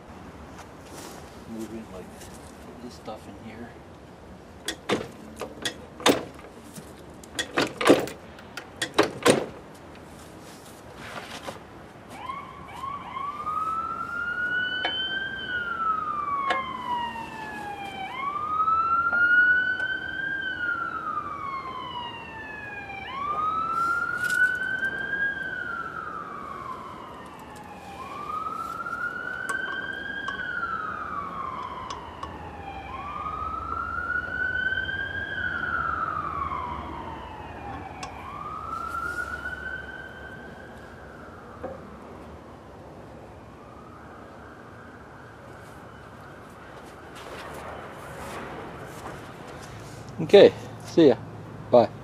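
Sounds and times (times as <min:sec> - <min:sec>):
sharp clicks and knocks: 0:04.6 - 0:10.0
siren wailing: 0:12.2 - 0:49.0.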